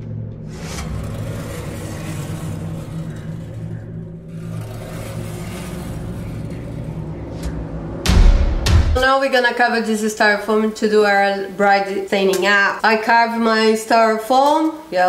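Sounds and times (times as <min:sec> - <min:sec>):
droning background music: 0:00.0 - 0:12.2.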